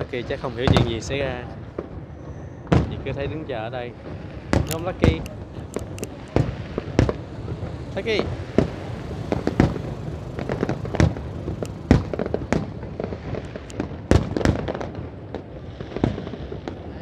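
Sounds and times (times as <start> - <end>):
fireworks bursting: 3.9 - 17.0.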